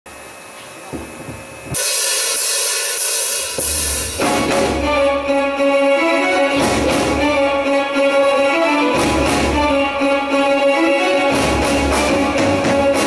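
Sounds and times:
drum kit with crashing cymbals: 1.6s - 5.4s, 6.5s - 7.5s, 11.3s - 13.0s
bass guitar: 11.3s - 13.0s.

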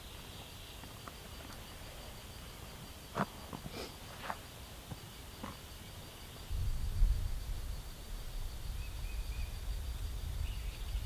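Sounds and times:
wind buffeting microphone: 6.4s - 11.0s
faint bird chirps: 8.7s - 11.0s.

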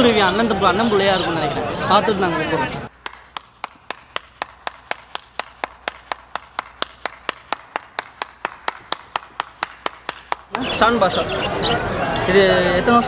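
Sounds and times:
person clapping: 2.9s - 10.7s.

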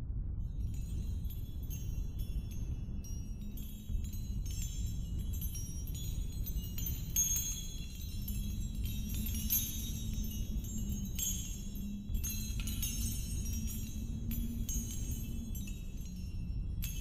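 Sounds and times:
high tinkling chimes: 0.4s - 17.0s.

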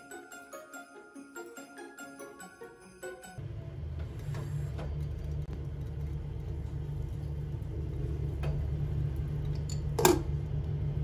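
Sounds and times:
low mechanical rumble: 3.4s - 11.0s.

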